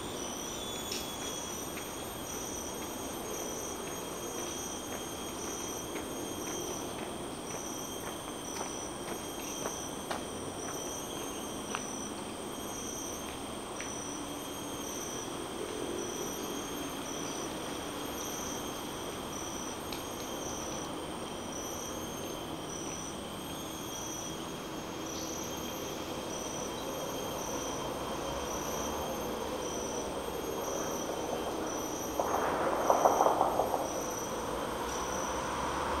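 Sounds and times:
high-pitched insect drones: 0:00.0 - 0:36.0
insect chirping: 0:00.0 - 0:36.0
highway traffic rumble: 0:28.0 - 0:36.0
vehicle passing: 0:32.1 - 0:36.0.

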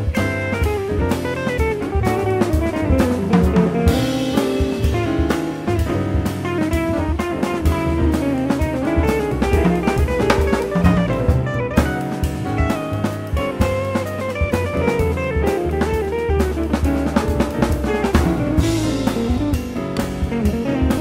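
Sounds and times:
bass: 0:00.0 - 0:21.0
drums: 0:00.0 - 0:21.0
electric guitar melody: 0:00.0 - 0:21.0.

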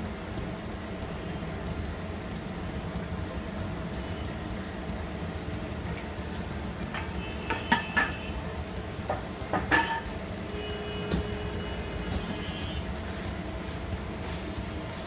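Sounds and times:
steady low hum: 0:00.0 - 0:15.0
kitchenware clinking: 0:06.9 - 0:08.3, 0:09.1 - 0:10.2.

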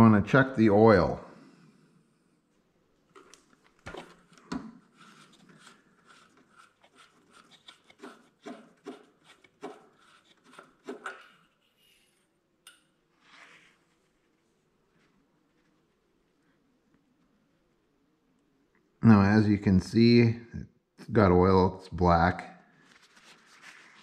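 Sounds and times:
dipstick clicks and scrapes: 0:03.2 - 0:12.0
paper towel rustle: 0:22.8 - 0:24.0.

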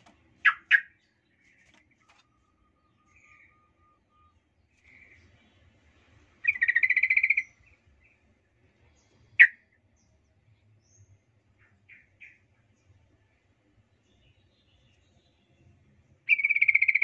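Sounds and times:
bulbul calling: 0:00.0 - 0:02.3, 0:06.4 - 0:07.8, 0:09.4 - 0:09.6, 0:16.3 - 0:17.0.

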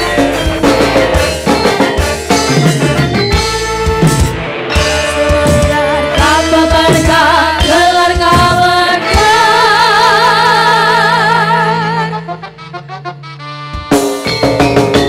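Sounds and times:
sharp drum hits: 0:00.0 - 0:09.2
women singing with band: 0:04.7 - 0:12.4.

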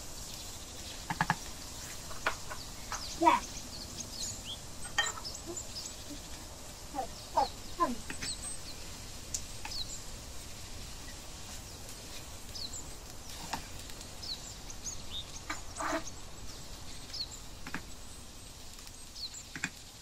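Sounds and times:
frying hiss: 0:00.0 - 0:20.0
wooden spoon scraping: 0:01.8 - 0:03.2, 0:04.8 - 0:05.4, 0:15.5 - 0:16.2
spoon knocking against pan: 0:04.9 - 0:05.3.

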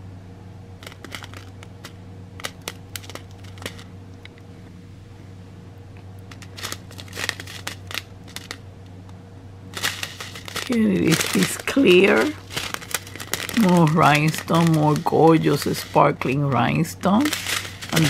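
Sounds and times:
steady low hum: 0:00.0 - 0:18.0
plastic bag crinkling: 0:00.8 - 0:03.9, 0:06.3 - 0:08.6, 0:09.7 - 0:18.0.

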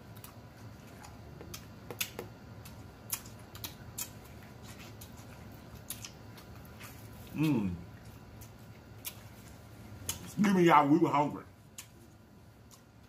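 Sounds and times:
chewing: 0:00.1 - 0:10.4, 0:11.7 - 0:13.0
mouth clicks and smacks: 0:01.4 - 0:05.2.

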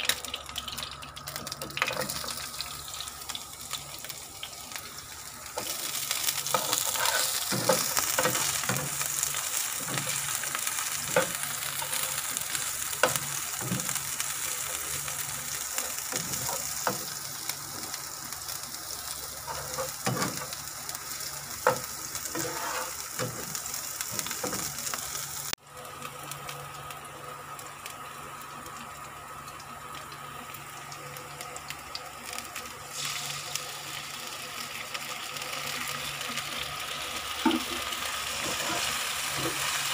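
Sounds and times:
scallions sizzling in hot oil: 0:00.0 - 0:39.9
spatula scraping and knocking pan: 0:06.5 - 0:08.9, 0:21.6 - 0:23.6.

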